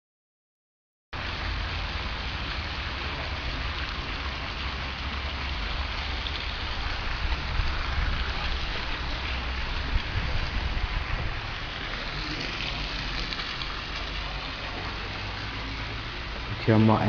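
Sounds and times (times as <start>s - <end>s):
steady hissing rush: 1.5s - 17.0s
wind buffeting microphone: 6.5s - 13.3s.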